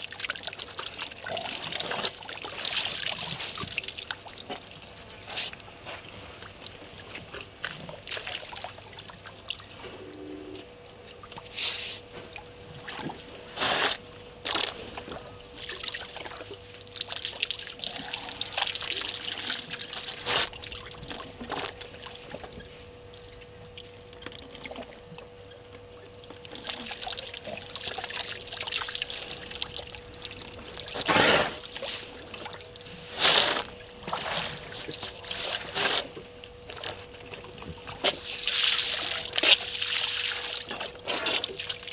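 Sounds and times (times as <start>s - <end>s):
elephants splashing water: 30.9s - 32.5s.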